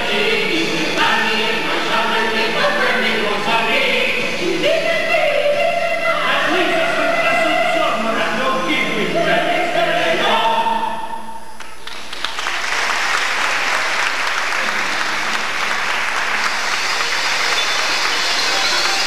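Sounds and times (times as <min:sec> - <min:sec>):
choir song with accompaniment: 0:00.0 - 0:11.6
audience applauding: 0:11.6 - 0:19.0.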